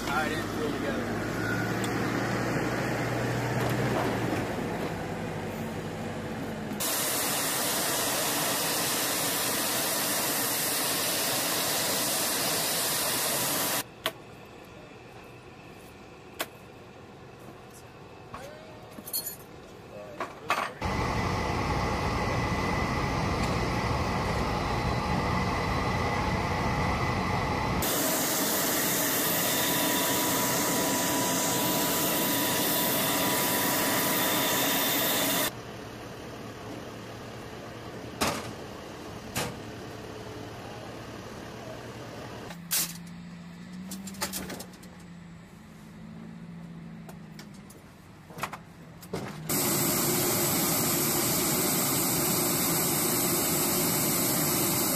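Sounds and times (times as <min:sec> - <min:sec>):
loud engine noise with whine: 0:00.0 - 0:19.9, 0:20.8 - 0:47.8, 0:48.4 - 0:54.9
loud hiss: 0:06.8 - 0:13.8, 0:20.8 - 0:35.5, 0:49.5 - 0:54.9.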